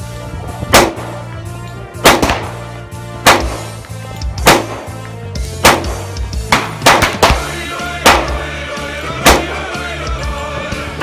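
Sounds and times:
background music: 0.0s - 11.0s
pistol shots: 0.7s - 1.3s, 2.0s - 2.6s, 3.2s - 3.8s, 4.4s - 8.5s, 9.2s - 9.7s.

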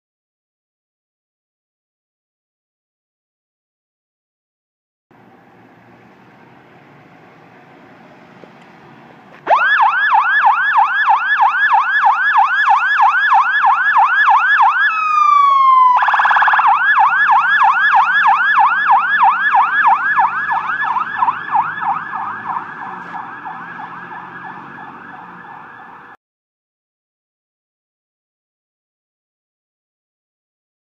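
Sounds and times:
fire truck siren yelping: 8.5s - 26.2s.

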